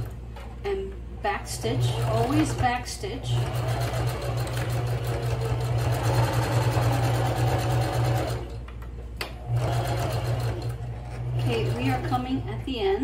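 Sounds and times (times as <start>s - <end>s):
sewing machine stitching: 1.6s - 8.6s, 9.4s - 12.4s.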